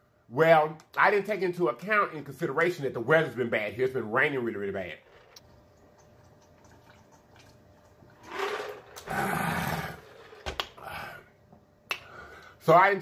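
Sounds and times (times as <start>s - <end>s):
man drinking: 5.4s - 11.2s
rough breathy throat sound: 9.0s - 10.1s.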